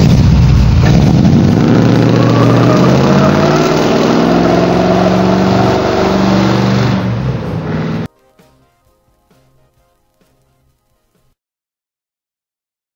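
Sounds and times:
car engine revving high: 0:00.8 - 0:08.1.

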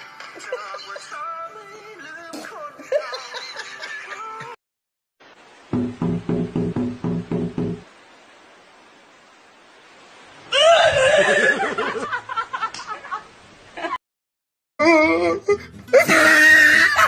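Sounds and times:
rhythmic laughter: 0:00.2 - 0:01.2, 0:02.8 - 0:04.6
low hiss: 0:05.2 - 0:14.0.

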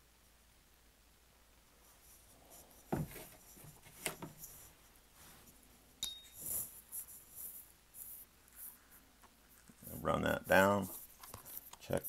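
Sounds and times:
light wooden knocks: 0:02.9 - 0:04.4
scratchy rubbing: 0:06.3 - 0:12.0.

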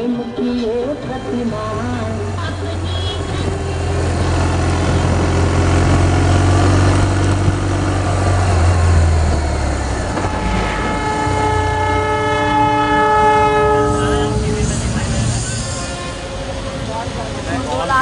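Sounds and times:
low rumble of road travel: 0:00.0 - 0:18.0
train horn blast: 0:10.1 - 0:17.7.

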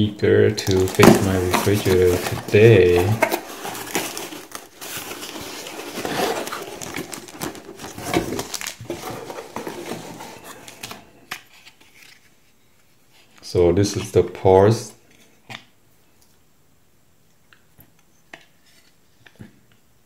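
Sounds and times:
packing wrap crinkling: 0:00.6 - 0:12.3.

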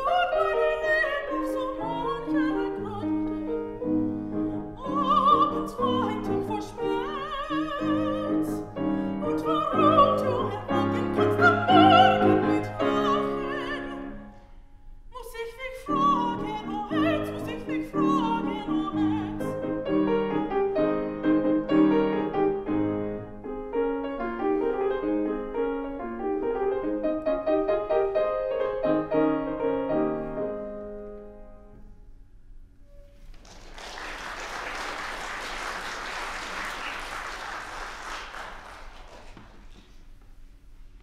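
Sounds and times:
grand piano playing: 0:00.0 - 0:14.3, 0:15.8 - 0:32.0
audience applauding: 0:33.3 - 0:39.8.

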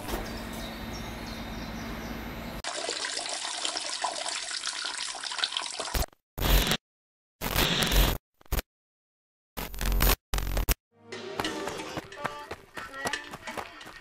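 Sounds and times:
water rushing into toilet bowl: 0:02.6 - 0:06.1.

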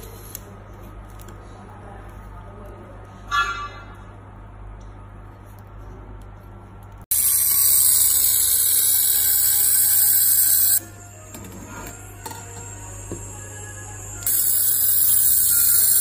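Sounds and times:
laser welder hiss and whine: 0:07.1 - 0:16.0.

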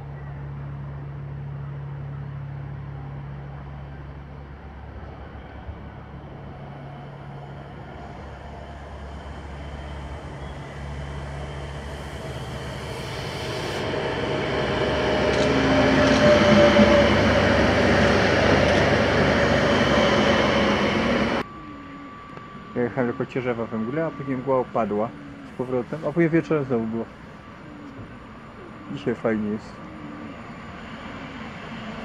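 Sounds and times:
train rumble: 0:00.0 - 0:21.5
electric whine: 0:05.7 - 0:32.0.

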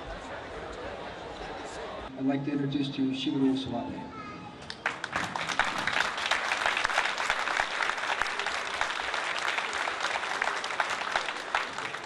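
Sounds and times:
audience applause: 0:04.8 - 0:12.0.

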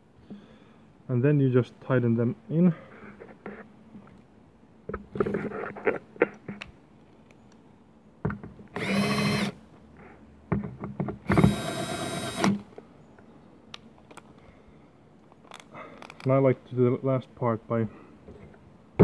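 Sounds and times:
cordless drill driving bolts: 0:08.7 - 0:09.6, 0:11.2 - 0:12.6.

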